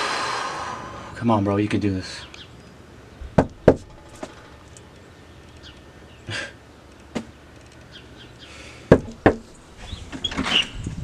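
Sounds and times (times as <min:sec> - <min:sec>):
fist knocking on door: 0:03.3 - 0:03.9, 0:08.9 - 0:09.4.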